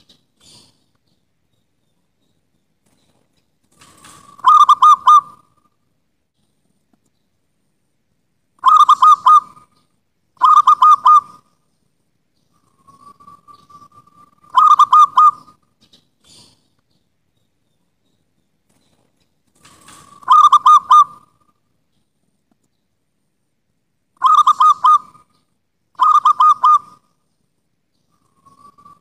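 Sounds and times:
dove cooing: 0:03.8 - 0:05.6, 0:08.6 - 0:09.8, 0:10.4 - 0:11.5, 0:12.6 - 0:15.6, 0:19.6 - 0:21.4, 0:24.2 - 0:25.3, 0:26.0 - 0:27.1.

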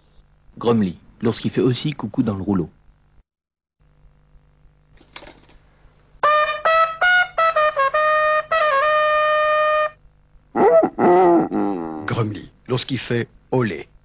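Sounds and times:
trumpet fanfare: 0:06.2 - 0:10.0.

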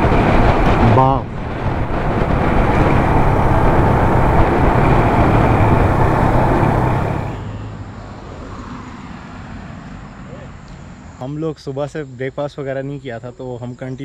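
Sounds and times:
motorcycle engine running: 0:00.0 - 0:07.4
road noise: 0:00.0 - 0:11.5.

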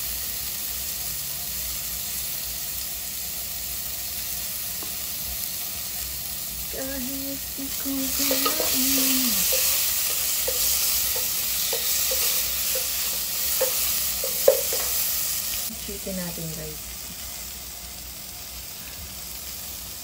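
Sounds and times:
vegetables sizzling in a pot: 0:00.0 - 0:20.0
spatula knocking against pot: 0:08.1 - 0:15.0.

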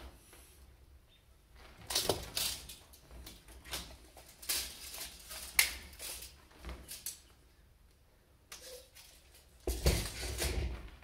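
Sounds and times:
wire mesh crinkling and rattling: 0:01.5 - 0:07.5, 0:08.5 - 0:11.0
wire mesh snapping: 0:01.6 - 0:07.3.

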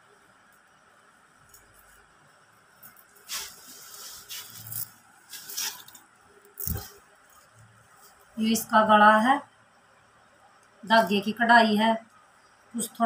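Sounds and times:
fabric rustling: 0:02.7 - 0:08.4.

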